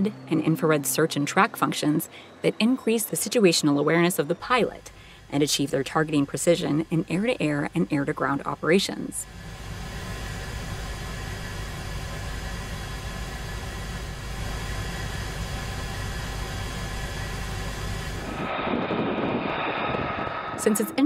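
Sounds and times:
high jet whine: 0.0s - 21.0s
jet fighter rumble and hiss: 3.7s - 21.0s.

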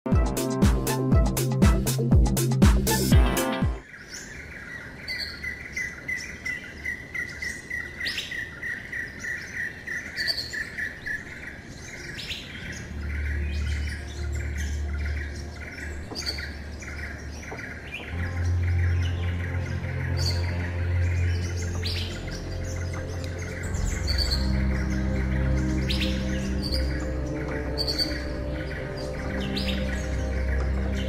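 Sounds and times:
songbirds chirping: 0.1s - 31.0s
higher bird calls: 3.0s - 31.0s
low rumble: 18.2s - 31.0s.

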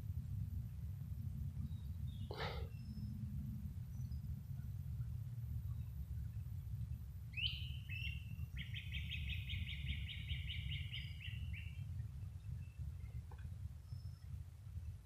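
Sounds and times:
songbird singing: 0.0s - 15.0s
steady low rumble: 0.0s - 15.0s.

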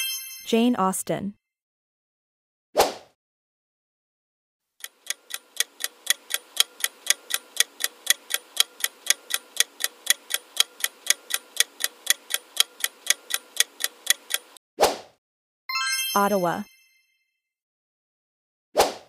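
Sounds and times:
ticking clock countdown: 4.8s - 14.6s.

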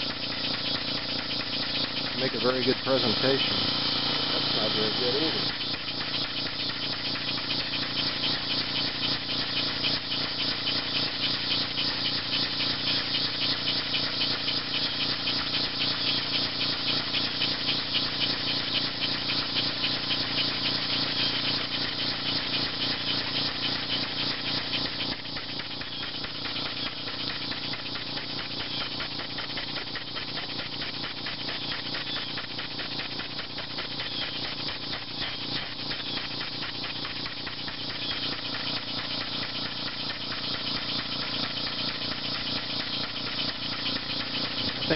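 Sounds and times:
air engine rhythmic beat: 0.0s - 44.9s
cicadas droning: 0.0s - 44.9s.

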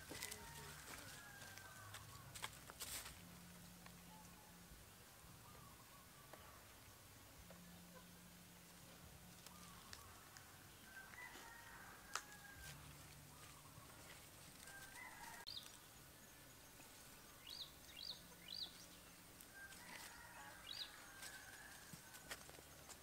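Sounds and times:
small birds chirping: 3.4s - 11.2s, 12.9s - 23.0s
distant bird calls: 3.6s - 11.8s, 12.9s - 21.8s.

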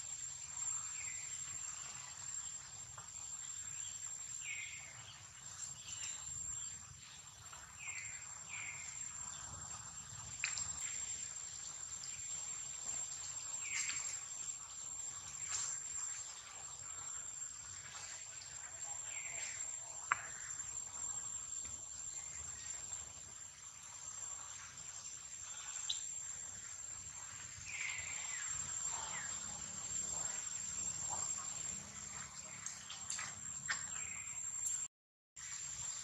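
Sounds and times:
high-pitched insect drone: 0.0s - 34.9s.

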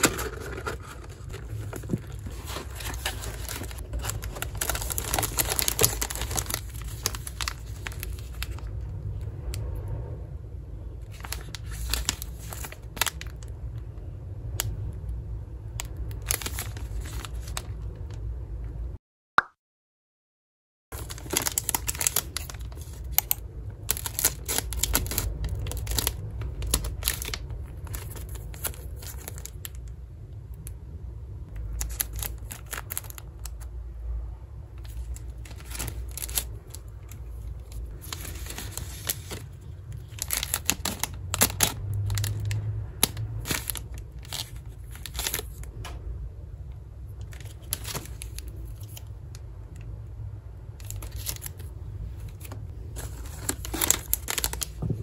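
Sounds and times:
packaging crinkling and tearing: 0.0s - 9.2s, 11.1s - 13.6s, 15.7s - 18.2s, 20.9s - 29.9s, 31.6s - 33.7s, 34.8s - 45.8s, 47.1s - 49.8s, 50.7s - 55.0s.

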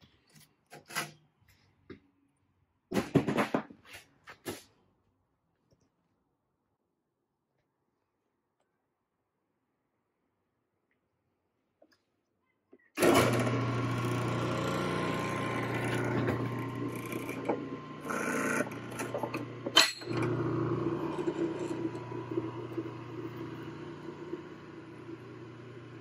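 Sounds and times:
drum sander motor hum: 13.0s - 26.0s.

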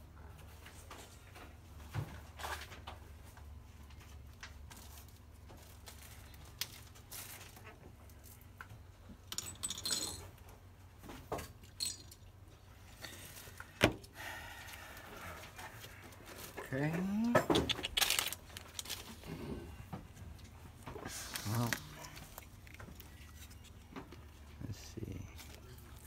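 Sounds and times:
low steady hum: 0.0s - 26.0s
metal tools clinking: 9.2s - 10.4s, 11.7s - 12.3s.

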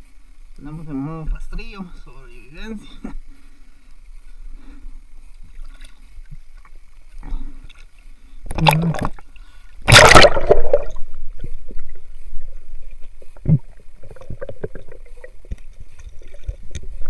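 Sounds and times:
water splashing and gurgling: 5.3s - 17.0s.

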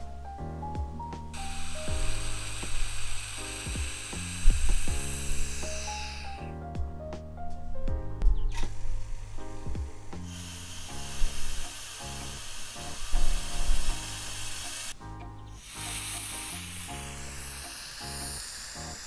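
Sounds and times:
background music: 0.0s - 19.0s
hiss of air in vacuum chamber: 1.4s - 6.5s, 8.6s - 15.0s, 15.6s - 19.0s.

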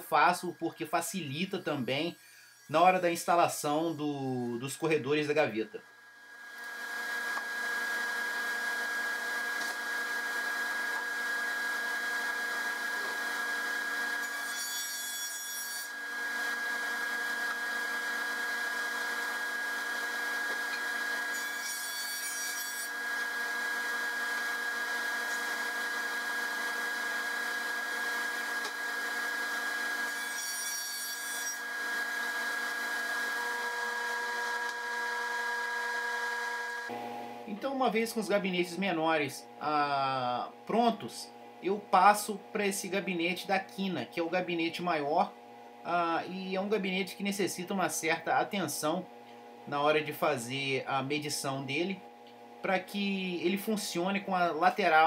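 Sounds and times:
table saw cutting wood: 0.3s - 5.3s, 6.2s - 38.2s.

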